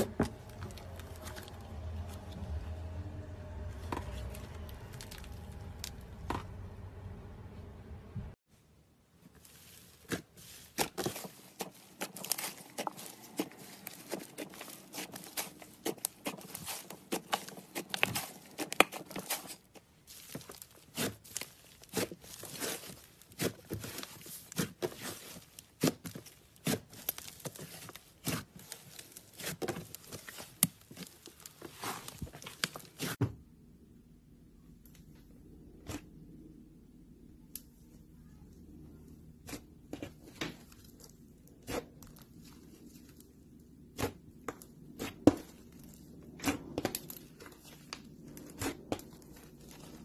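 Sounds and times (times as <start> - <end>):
slime crackling and snapping: 4.3 - 6.0.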